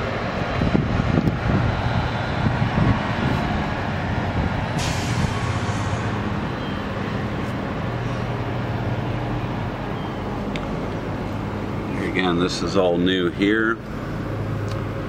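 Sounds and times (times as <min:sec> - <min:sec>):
short hiss: 0:04.8 - 0:06.2.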